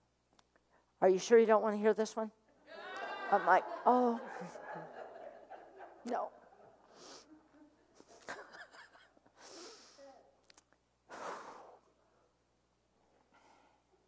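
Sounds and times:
woman breathing: 0:06.8 - 0:08.2, 0:09.4 - 0:10.2, 0:11.1 - 0:12.4, 0:13.0 - 0:14.0.

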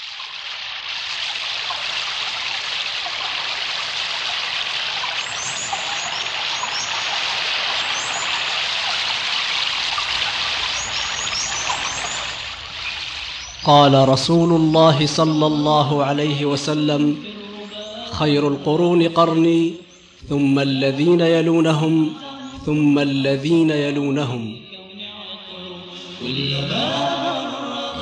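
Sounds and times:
stream flowing: 0:00.0 - 0:13.8.

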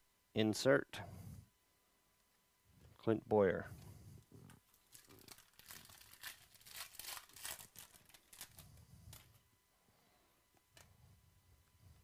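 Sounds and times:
foil wrapper crinkling and tearing: 0:04.7 - 0:09.3.

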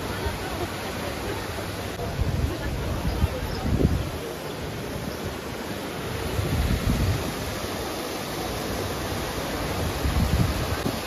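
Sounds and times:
fountain water cascading: 0:00.0 - 0:11.0
wind gusts on microphone: 0:01.8 - 0:07.9, 0:08.6 - 0:11.0.

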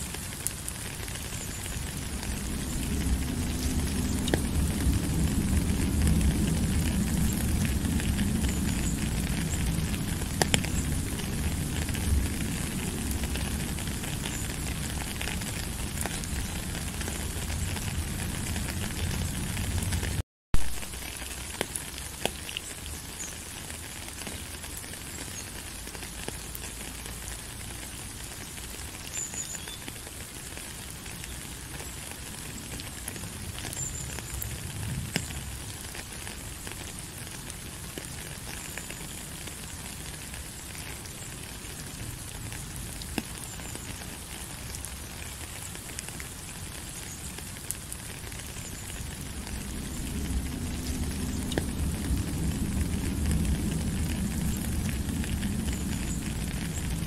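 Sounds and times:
steady rain falling: 0:00.0 - 0:57.0
low rumble: 0:01.6 - 0:20.2, 0:48.9 - 0:57.0.

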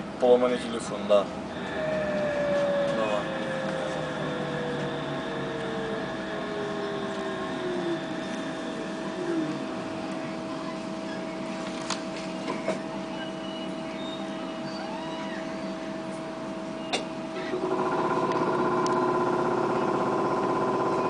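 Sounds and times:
road noise: 0:00.0 - 0:14.6
electrical hum: 0:00.0 - 0:21.0
electric drive whine: 0:00.2 - 0:21.0.

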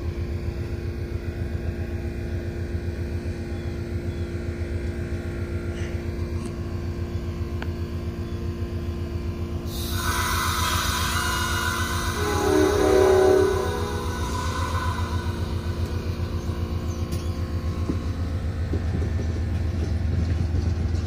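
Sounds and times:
constant hum: 0:00.0 - 0:21.0
train wheels rumbling on rail: 0:00.0 - 0:21.0
train horn: 0:09.7 - 0:16.3.

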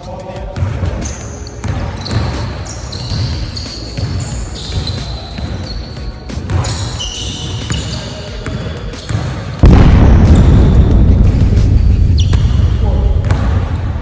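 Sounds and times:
sneaker squeaks: 0:00.5 - 0:09.6, 0:12.2 - 0:12.6
basketball bouncing on gym floor: 0:00.6 - 0:13.8.

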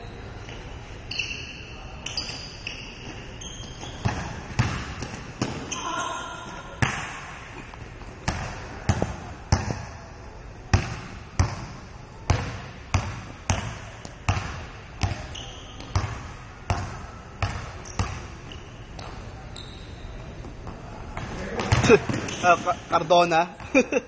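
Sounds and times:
basketball bouncing on hardwood floor: 0:04.0 - 0:05.6.

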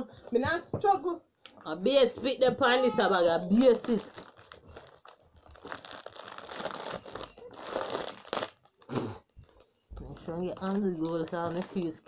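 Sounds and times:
foil packet crumpling: 0:03.4 - 0:12.0.

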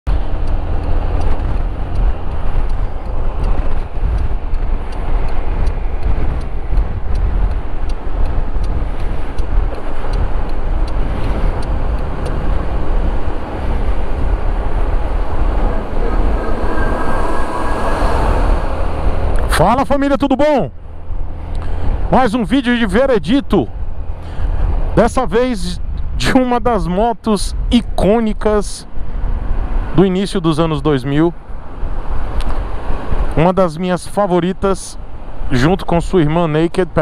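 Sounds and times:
faint regular ticking: 0:00.1 - 0:15.9
wind rumble on microphone: 0:00.1 - 0:37.0.

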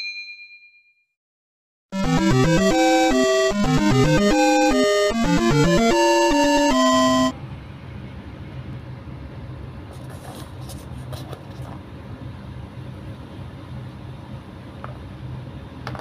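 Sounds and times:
electronic music jingle: 0:02.0 - 0:07.4.

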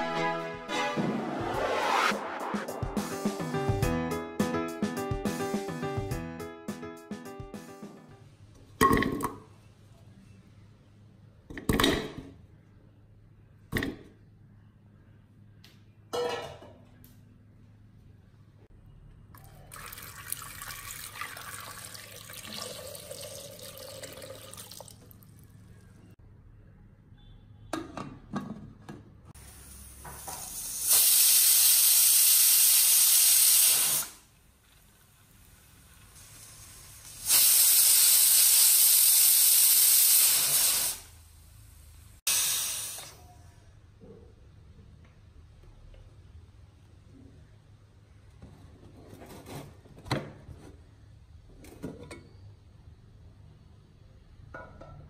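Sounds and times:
pressure cooker hissing steam: 0:29.4 - 0:34.2, 0:35.7 - 0:41.2, 0:42.3 - 0:43.3.

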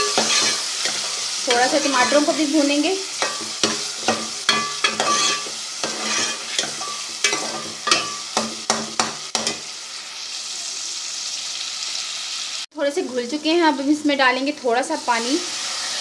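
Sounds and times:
metal spoon scraping a pot: 0:00.0 - 0:08.4
food sizzling in oil: 0:00.0 - 0:16.0.

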